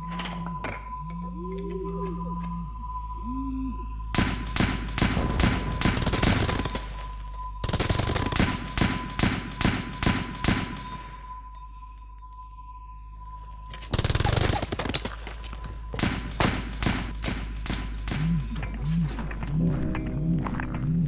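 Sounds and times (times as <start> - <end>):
automatic gunfire bursts: 5.0 - 6.9, 7.6 - 10.8, 14.0 - 15.1.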